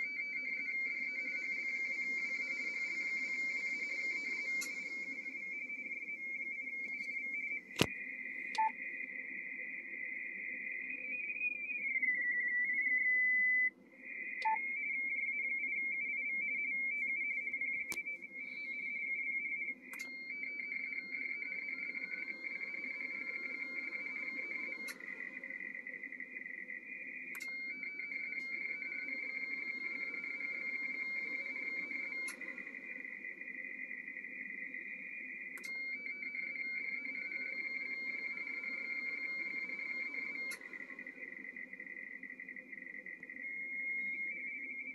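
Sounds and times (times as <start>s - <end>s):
steady single radio tone: 0.0s - 44.9s
two-tone data warble: 0.0s - 44.9s
click: 4.2s - 5.3s, 6.9s - 8.8s, 17.8s - 18.1s, 19.9s - 20.2s, 24.0s - 25.1s, 27.3s - 27.6s, 32.0s - 32.6s, 35.6s - 35.8s, 40.1s - 41.0s.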